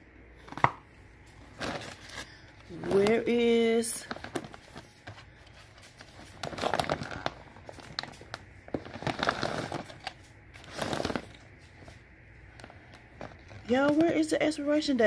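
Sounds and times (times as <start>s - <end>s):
plastic bags rustling: 1.2s - 14.7s
cardboard carton crinkling: 1.4s - 12.0s.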